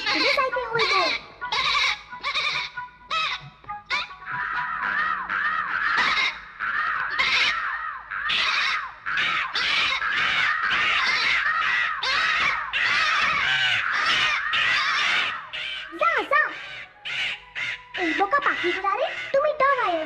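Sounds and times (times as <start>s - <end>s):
cartoon lamb bleating: 0.0s - 6.4s
cartoon crow cawing: 0.0s - 20.0s.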